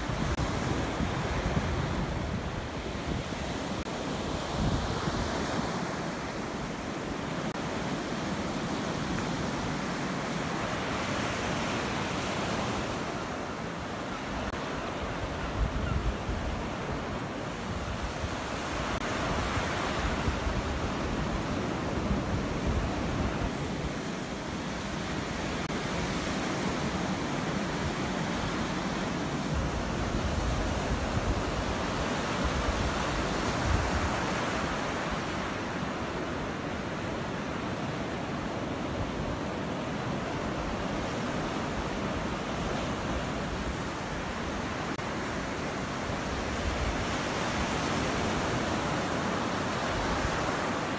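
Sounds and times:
waves breaking on beach: 0.0s - 50.9s.

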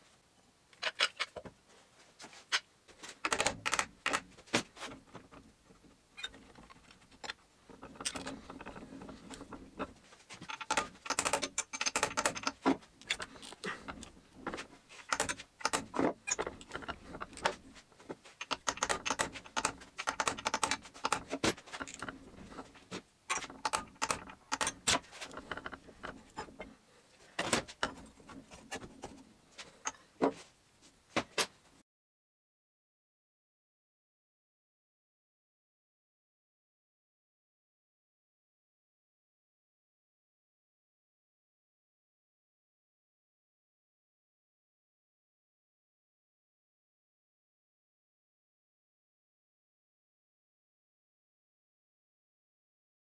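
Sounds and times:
hand tools clicking on steel tube: 6.2s - 17.8s, 18.4s - 26.7s.

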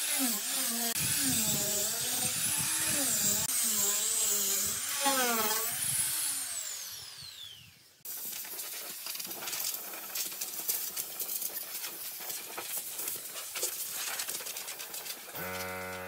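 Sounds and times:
sanding tool spinning down: 0.0s - 8.0s.

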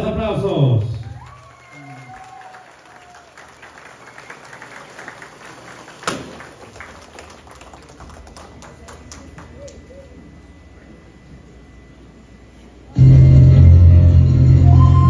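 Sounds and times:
scattered hand claps: 1.2s - 9.9s.

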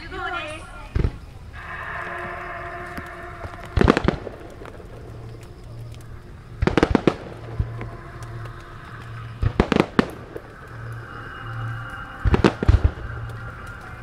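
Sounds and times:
firework shells bursting: 2.6s - 11.2s.

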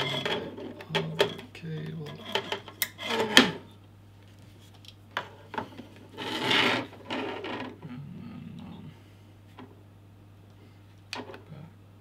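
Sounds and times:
cable scraping rub: 0.0s - 0.8s, 2.0s - 3.6s, 6.0s - 7.8s.

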